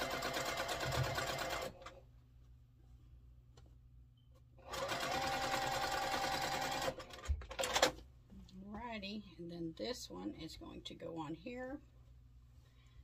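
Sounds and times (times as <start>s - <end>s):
sewing machine stitching: 0.0s - 2.0s, 4.7s - 8.0s.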